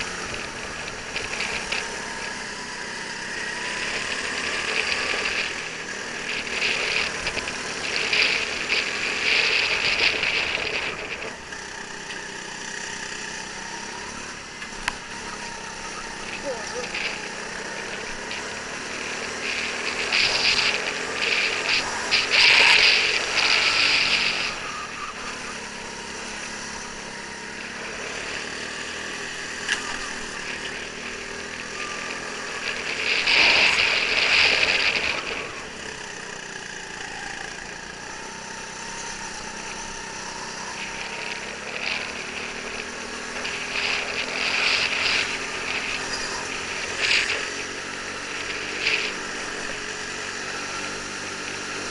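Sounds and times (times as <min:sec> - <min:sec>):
go-kart engine racing: 0:00.0 - 0:51.9
high rushing hiss: 0:15.1 - 0:51.9.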